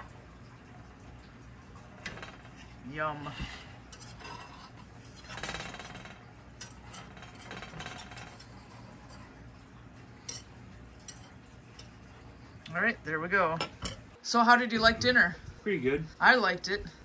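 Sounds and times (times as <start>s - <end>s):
knife scraping cornbread: 3.4s - 5.8s.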